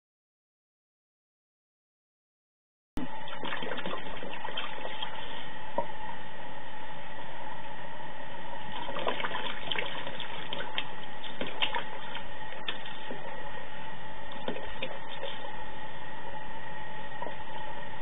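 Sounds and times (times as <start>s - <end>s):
short water splashes: 3.0s - 5.2s, 8.7s - 13.3s.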